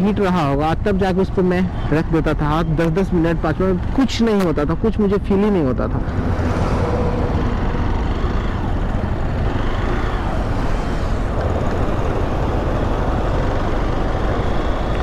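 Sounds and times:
wind and road noise: 0:00.0 - 0:15.0
motorcycle engine running: 0:06.0 - 0:15.0.

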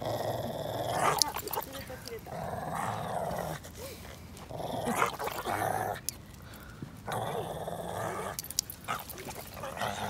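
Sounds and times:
dog growling in play: 0:00.0 - 0:06.1, 0:07.0 - 0:10.0
light clicks: 0:08.3 - 0:09.6.

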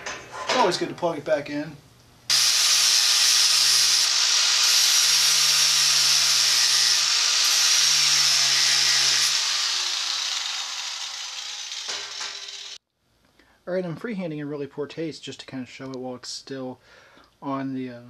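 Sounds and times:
angle grinder whining: 0:02.3 - 0:12.8.

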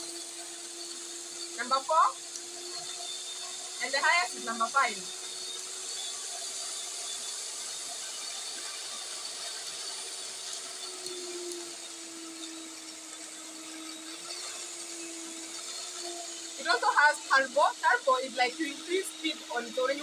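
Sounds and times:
stand mixer motor hum: 0:00.0 - 0:20.0.

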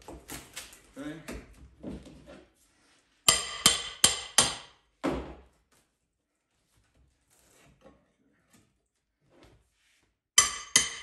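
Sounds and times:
hammer striking metal pry bar: 0:03.3 - 0:04.8, 0:10.4 - 0:11.0.

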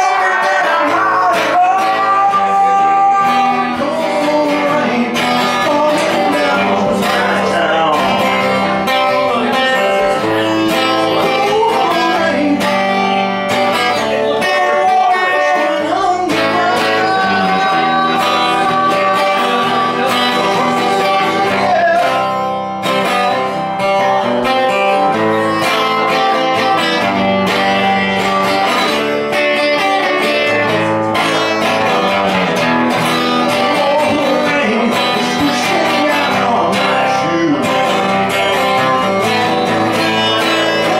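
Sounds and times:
acoustic guitar strummed and picked: 0:00.0 - 0:40.9
woman singing: 0:14.2 - 0:22.2.

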